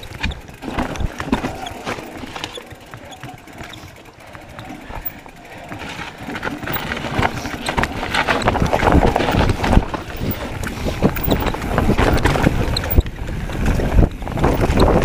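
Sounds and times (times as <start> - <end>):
bike knocking and rattling: 0.0 - 15.0
tyres rolling over dirt: 0.0 - 15.0
wind buffeting microphone: 6.6 - 15.0.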